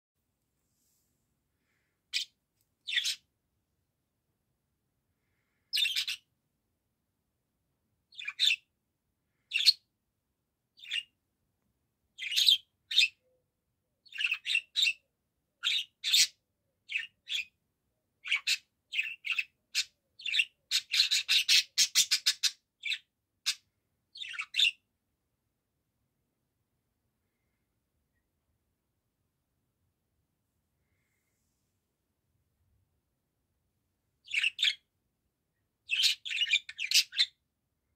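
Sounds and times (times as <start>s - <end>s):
budgerigar chirping and warbling: 2.9s - 3.3s, 5.8s - 6.3s, 8.1s - 8.7s, 9.5s - 9.8s, 10.8s - 11.1s, 12.2s - 13.2s, 14.0s - 15.0s, 15.6s - 17.6s, 18.2s - 24.8s, 34.2s - 34.8s, 35.8s - 37.4s.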